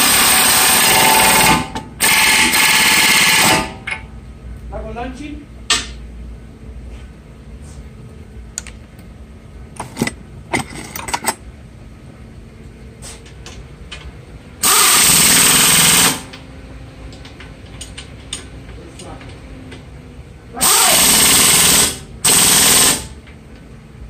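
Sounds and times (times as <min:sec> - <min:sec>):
pneumatic impact wrench: 0:00.0 - 0:04.0, 0:14.6 - 0:16.3, 0:20.6 - 0:23.2.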